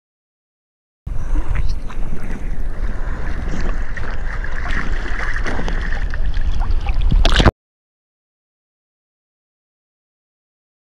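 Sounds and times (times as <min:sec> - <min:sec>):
small waves lapping: 0:01.1 - 0:07.5
wind rumbling on microphone: 0:01.1 - 0:07.5.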